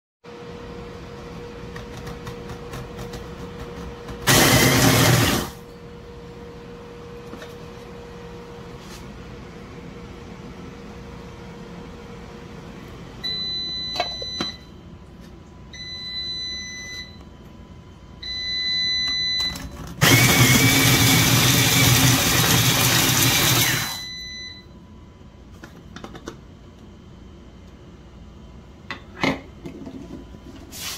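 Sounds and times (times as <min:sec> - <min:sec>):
food processor chopping vegetables: 0:01.7 - 0:05.6, 0:20.0 - 0:24.0.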